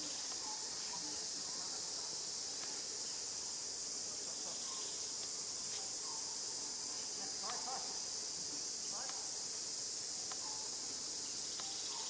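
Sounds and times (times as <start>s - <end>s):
faint chirping calls: 0.0s - 1.8s, 4.3s - 7.7s, 10.2s - 12.0s
insects buzzing: 0.0s - 12.0s.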